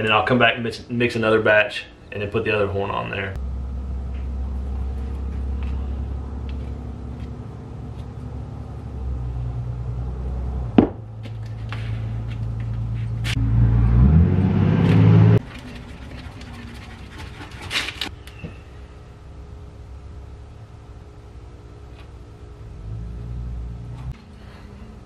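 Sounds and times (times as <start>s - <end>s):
mechanical rumble and hum: 0.8s - 25.0s.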